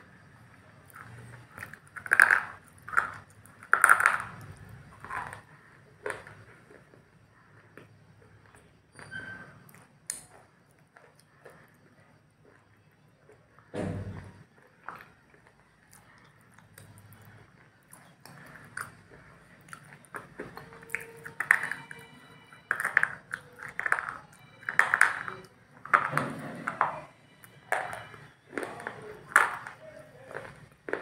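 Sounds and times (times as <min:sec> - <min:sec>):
high ringing pings: 0:21.1 - 0:23.1.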